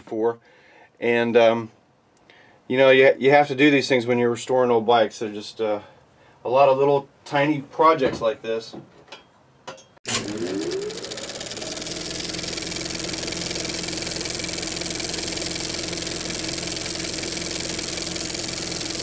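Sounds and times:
machine starting up and running: 10.1 - 19.0.

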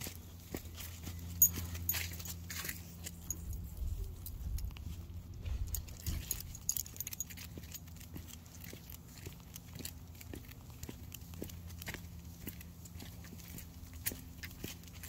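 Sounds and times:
footsteps on concrete: 0.0 - 15.0
dog leash jingling: 0.7 - 15.0.

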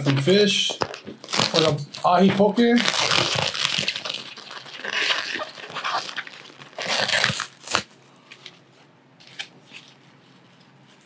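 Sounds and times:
plastic wrap crinkling: 0.0 - 8.0.

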